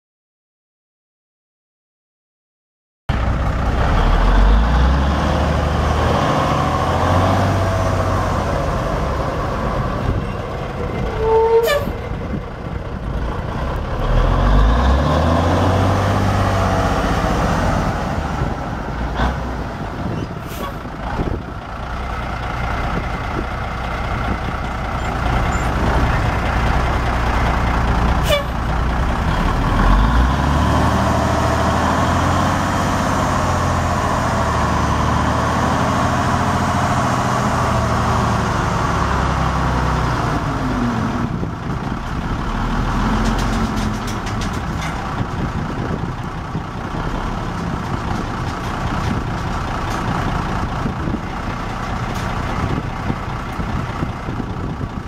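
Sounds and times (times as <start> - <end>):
diesel engine revving: 3.1 - 55.0
short squeal: 11.1 - 12.1, 20.2 - 20.8.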